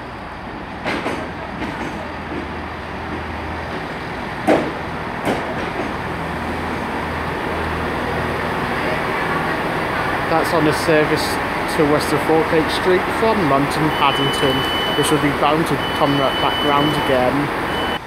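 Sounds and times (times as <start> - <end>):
train diesel engines humming: 0.0 - 18.0
sharp knocks: 4.4 - 6.0.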